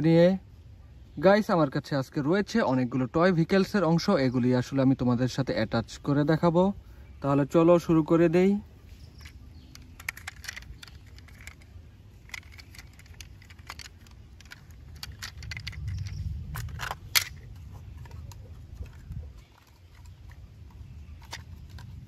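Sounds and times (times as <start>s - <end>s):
plastic toy parts clicking: 9.1s - 22.0s.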